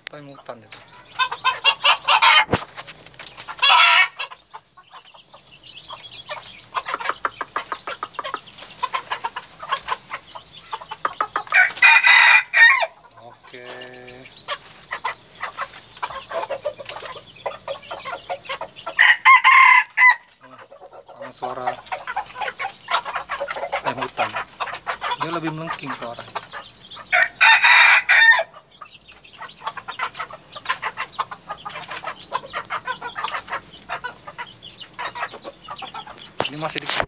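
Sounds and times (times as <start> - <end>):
chickens clucking: 0.0 - 37.0
rooster crowing: 11.5 - 13.0, 19.0 - 20.3, 27.1 - 28.5.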